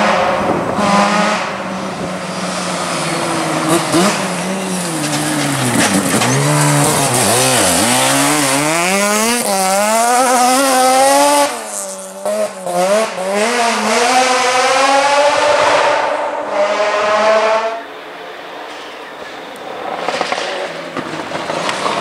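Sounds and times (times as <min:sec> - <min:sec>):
rally car engine revving: 0:00.0 - 0:18.0.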